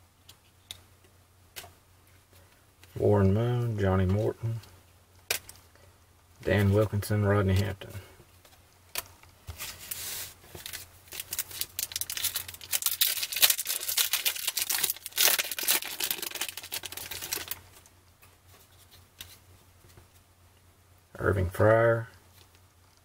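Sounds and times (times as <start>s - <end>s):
foil pack tearing and crinkling: 10.6s - 17.7s.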